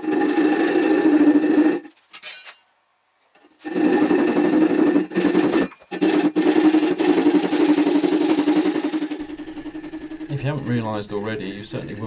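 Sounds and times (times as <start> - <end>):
handsaw cutting wood: 0.0 - 1.9, 3.6 - 10.6.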